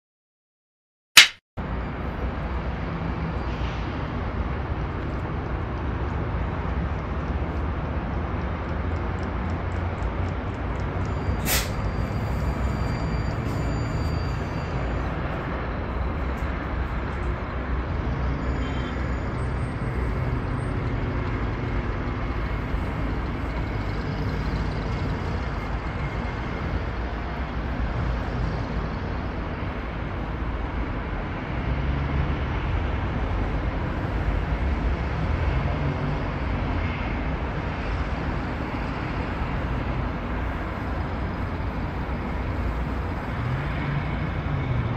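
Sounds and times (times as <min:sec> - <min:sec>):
sharp click: 0:01.2 - 0:01.4
highway traffic rumble: 0:01.6 - 0:44.9.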